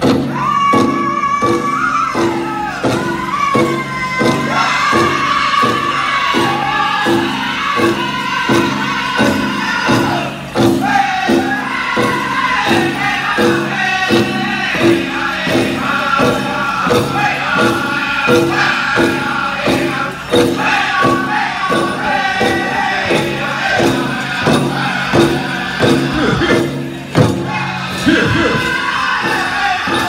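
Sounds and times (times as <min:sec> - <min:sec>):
bells jingling: 0:00.0 - 0:30.0
loud bass drumbeat: 0:00.0 - 0:30.0
men singing in high unison: 0:00.3 - 0:30.0.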